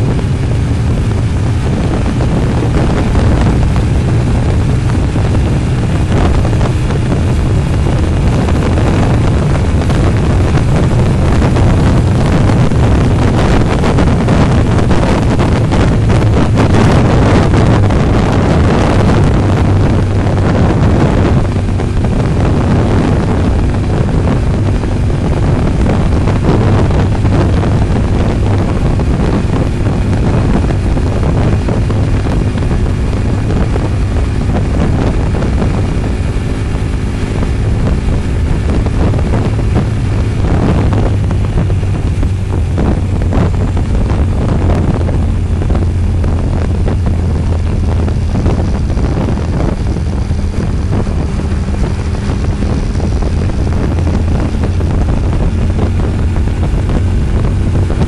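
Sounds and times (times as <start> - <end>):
vehicle engine drone: 0.0 - 58.0
wind rushing over microphone: 0.0 - 58.0.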